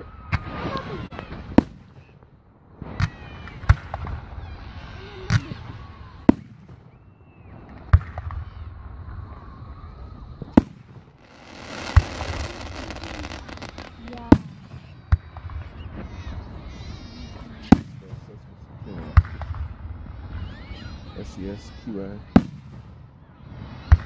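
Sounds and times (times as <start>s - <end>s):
firework shells bursting: 11.1s - 14.7s.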